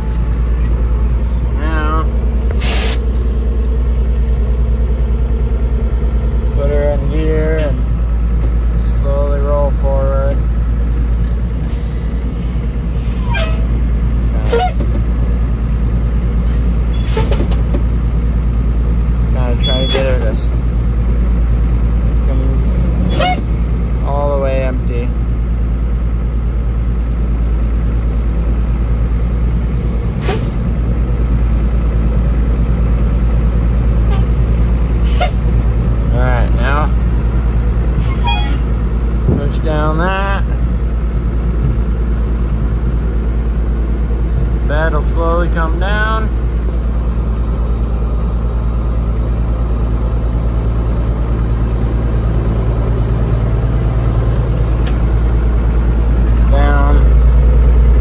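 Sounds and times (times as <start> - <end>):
truck engine running: 0.0 - 58.0
short hiss: 2.6 - 3.0.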